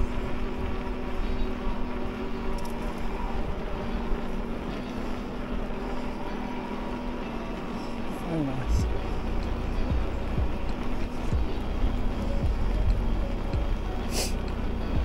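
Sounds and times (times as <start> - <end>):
electric bike motor hum: 0.0 - 15.0.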